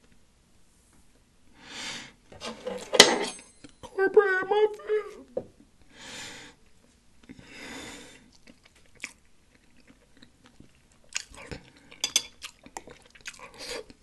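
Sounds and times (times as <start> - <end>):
soft breaths: 5.8 - 8.4
wet chewing and lip smacks: 8.2 - 14.0.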